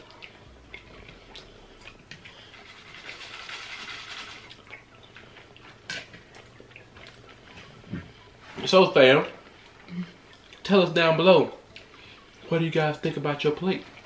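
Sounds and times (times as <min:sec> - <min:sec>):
wet chewing and lip smacks: 0:00.0 - 0:02.4, 0:04.4 - 0:08.4, 0:09.6 - 0:10.6, 0:11.7 - 0:12.4.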